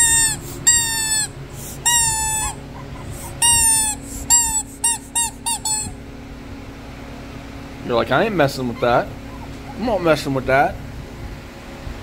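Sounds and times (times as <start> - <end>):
squeaky dog toy squeaking: 0.0 - 6.0.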